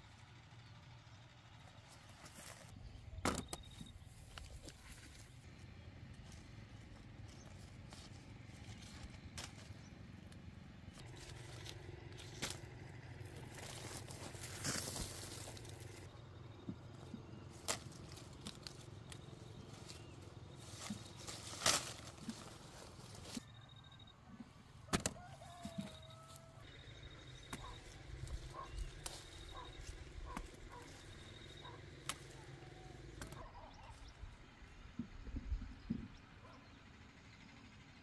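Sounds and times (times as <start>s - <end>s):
low steady rumble: 0.0s - 38.0s
leaves and branches rustling: 3.8s - 16.1s, 16.7s - 23.4s, 25.0s - 34.1s
fruit stems snapping: 9.3s - 9.8s, 11.2s - 12.8s, 17.5s - 20.0s, 20.7s - 22.6s, 24.9s - 25.9s, 31.6s - 32.5s, 33.2s - 33.5s.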